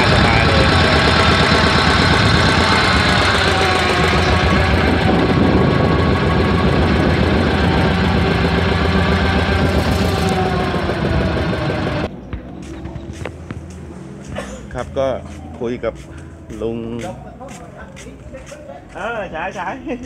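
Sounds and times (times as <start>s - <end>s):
boat engine running: 0.0s - 17.2s.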